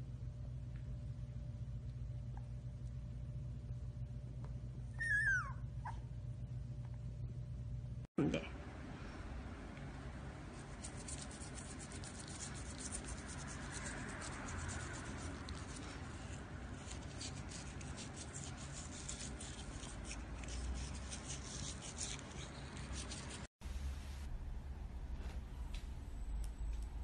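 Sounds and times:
toothbrush scrubbing teeth: 0:10.6 - 0:23.5.

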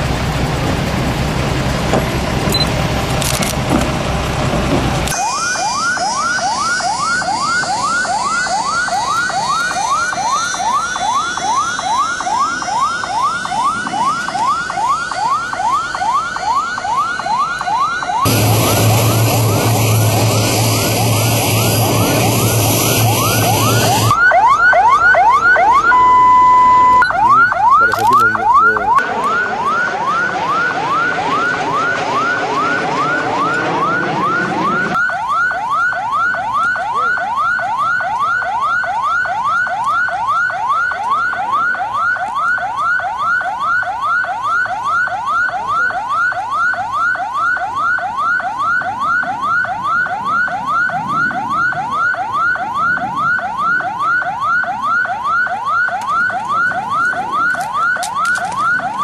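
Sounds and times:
electronic alarm siren whooping: 0:05.1 - 0:59.0
loud rushing noise: 0:18.1 - 0:24.2, 0:28.3 - 0:35.0.

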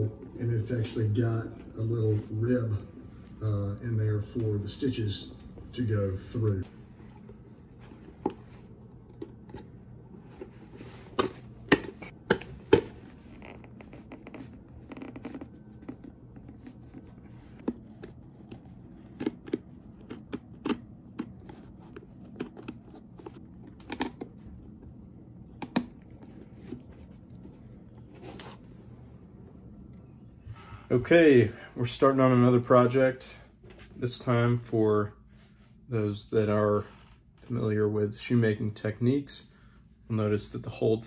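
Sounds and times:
rubber sole peeled away: 0:12.9 - 0:23.4.

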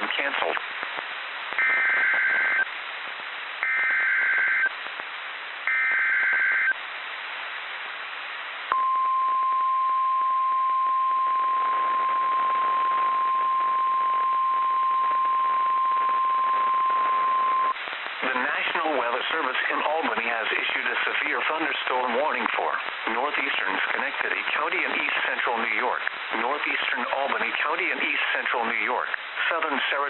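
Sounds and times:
radio hiss: 0:00.0 - 0:08.7, 0:11.5 - 0:30.0
screeching data tones: 0:01.6 - 0:02.7, 0:05.7 - 0:06.8
steady warning alarm tone: 0:03.6 - 0:04.7, 0:05.7 - 0:06.7.

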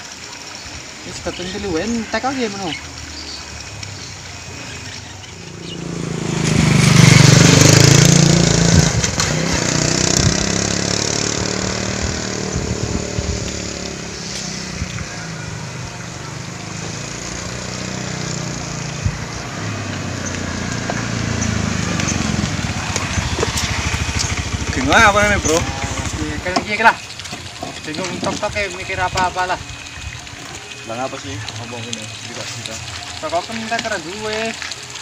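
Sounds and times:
motor scooter riding up: 0:03.2 - 0:27.9
small motorcycle engine running: 0:04.4 - 0:27.0.

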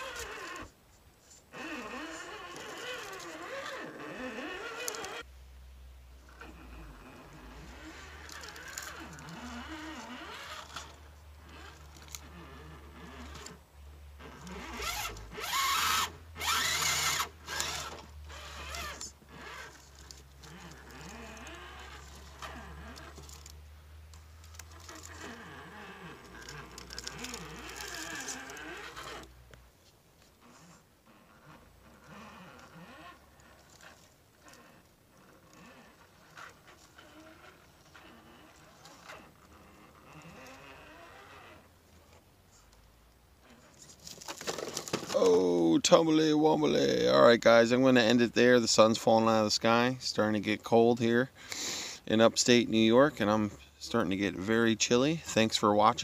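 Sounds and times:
toy car electric motor whining: 0:00.0 - 0:00.7, 0:01.5 - 0:05.3, 0:06.3 - 0:13.6, 0:14.2 - 0:29.5, 0:30.4 - 0:42.8.

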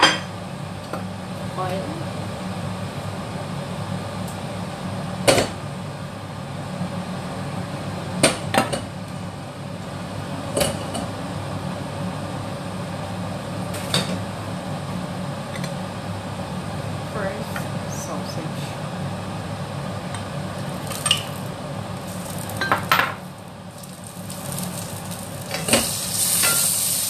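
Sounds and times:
kitchen exhaust fan humming: 0:00.0 - 0:27.0
pan and utensils clanking: 0:25.5 - 0:27.0.

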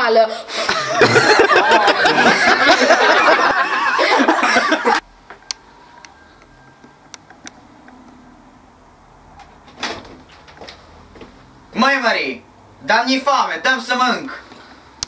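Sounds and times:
voices and laughter: 0:00.5 - 0:05.0.

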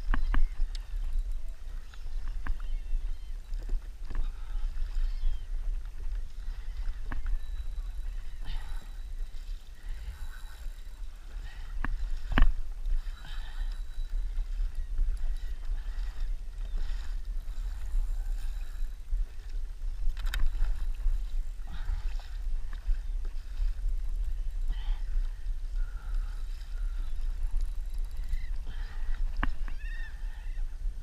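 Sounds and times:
water sloshing against kayak: 0:00.0 - 0:30.4
wind rumble on microphone: 0:00.0 - 0:31.0
light clicks: 0:19.4 - 0:20.8.

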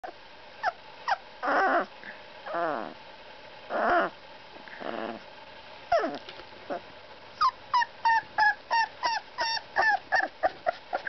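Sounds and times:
puppy squealing: 0:00.6 - 0:01.9, 0:05.9 - 0:06.8, 0:07.4 - 0:11.0
puppy whimpering: 0:00.6 - 0:01.9, 0:02.5 - 0:03.0, 0:03.7 - 0:04.2, 0:05.9 - 0:06.8, 0:07.4 - 0:11.0.

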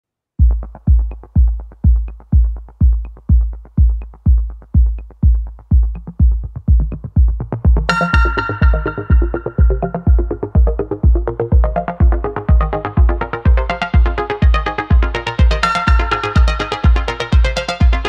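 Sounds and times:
electronic dance music: 0:00.4 - 0:18.0
heavy kick drum: 0:00.4 - 0:18.0
synthesizer part: 0:07.8 - 0:18.0.

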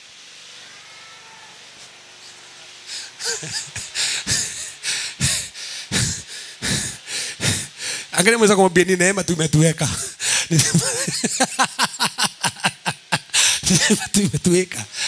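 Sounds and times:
person breathing short puffs: 0:02.9 - 0:08.1, 0:10.2 - 0:10.5, 0:13.3 - 0:13.7.

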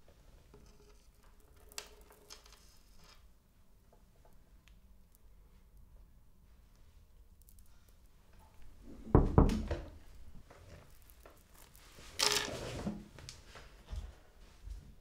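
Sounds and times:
chair scraping: 0:12.1 - 0:13.2.

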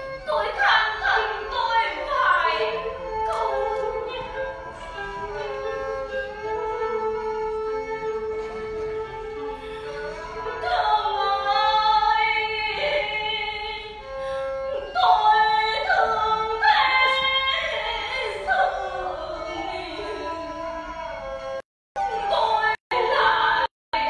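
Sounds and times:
traditional instrumental accompaniment: 0:00.0 - 0:24.0
woman singing ornamented phrases: 0:00.3 - 0:04.4, 0:22.0 - 0:24.0.

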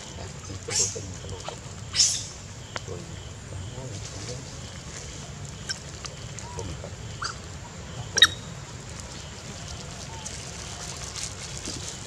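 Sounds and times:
monkeys squeaking: 0:00.4 - 0:02.4, 0:07.2 - 0:07.4, 0:08.1 - 0:08.5.

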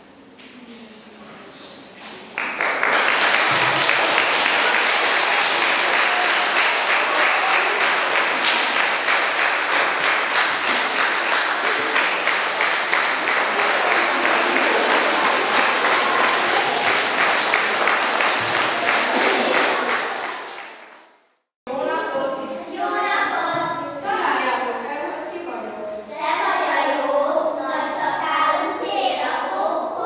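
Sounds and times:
children applauding: 0:02.3 - 0:21.0.

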